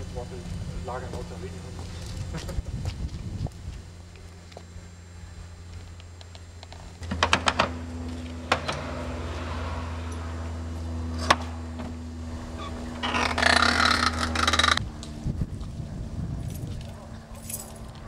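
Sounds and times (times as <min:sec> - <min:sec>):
steady low hum: 0:00.0 - 0:18.0
keys rattling in a lock: 0:17.4 - 0:17.9.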